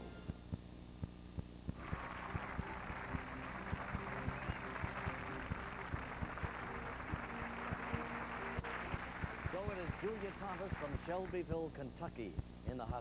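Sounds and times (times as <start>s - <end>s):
electrical hum: 0.0s - 13.0s
low sustained music notes: 1.8s - 10.8s
audience applauding: 1.8s - 11.7s.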